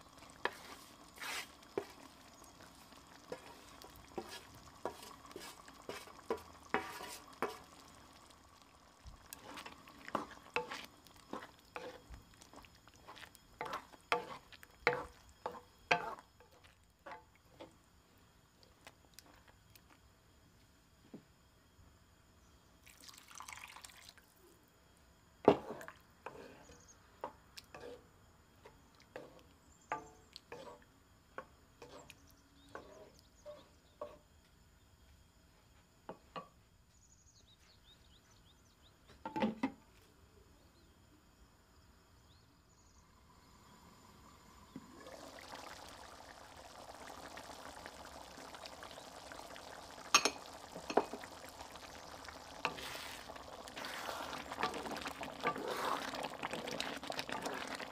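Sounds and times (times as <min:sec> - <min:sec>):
water poured into a pan: 0:00.0 - 0:16.3, 0:22.8 - 0:24.4, 0:43.4 - 0:57.9
sauce popping and dripping: 0:00.0 - 0:16.7, 0:22.9 - 0:24.2, 0:44.7 - 0:57.9
sauce simmering with bubbling hiss: 0:00.0 - 0:36.3, 0:41.6 - 0:57.9.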